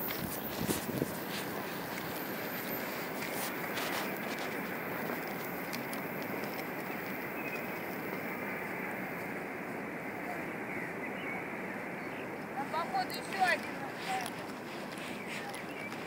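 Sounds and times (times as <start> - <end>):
distant train approaching: 0.0 - 16.0
faint clicks: 1.9 - 8.2.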